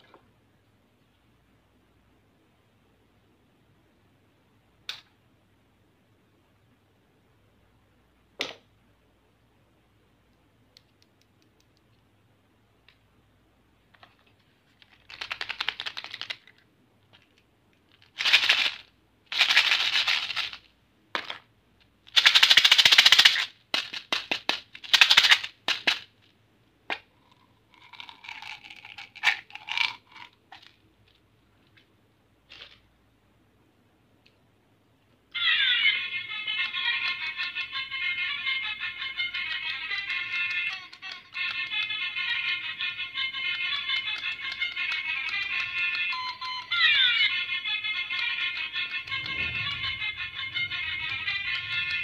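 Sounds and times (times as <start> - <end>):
candy pellets rattling: 27.3 - 30.7.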